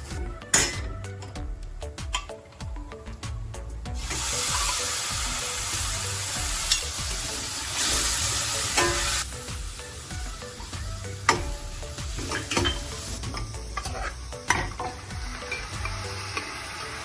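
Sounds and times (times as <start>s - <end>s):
stock sizzling in a hot pan: 3.9s - 17.0s.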